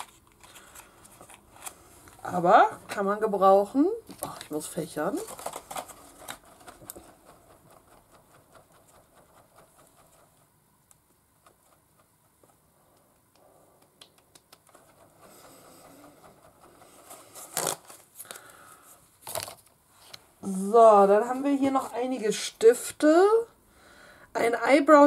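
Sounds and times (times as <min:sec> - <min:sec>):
folding fan fluttering: 0:04.2 - 0:13.0.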